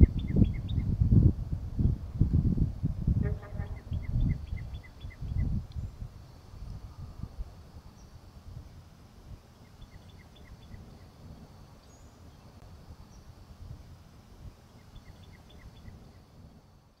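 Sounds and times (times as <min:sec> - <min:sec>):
small birds chirping: 0:00.0 - 0:01.0, 0:03.4 - 0:06.0, 0:09.3 - 0:13.4, 0:14.4 - 0:16.3.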